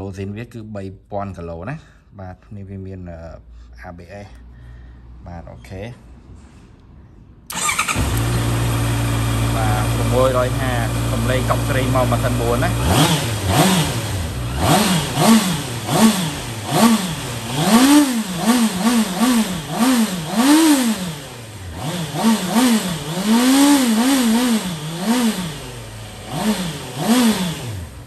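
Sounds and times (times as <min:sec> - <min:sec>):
motorcycle engine revving: 0:07.5 - 0:28.0.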